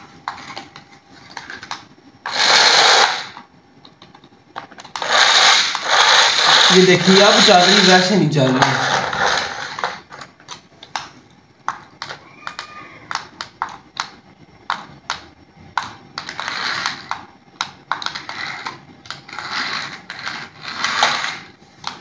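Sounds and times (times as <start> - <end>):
plastic wheels spinning on concrete: 1.4 - 3.4, 4.8 - 10.3, 12.0 - 13.6, 16.2 - 17.3, 17.9 - 22.0
toy car motors whirring: 1.4 - 3.4, 4.8 - 10.3, 12.0 - 13.3, 16.2 - 17.3, 17.9 - 21.5.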